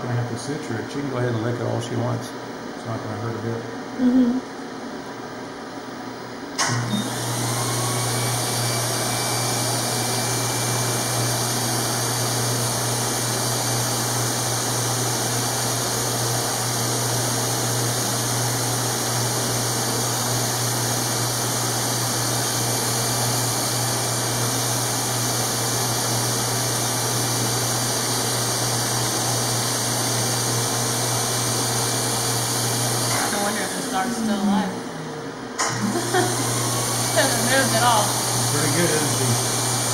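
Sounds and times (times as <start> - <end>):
smoke evacuator suction rushing: 19.3 - 39.9.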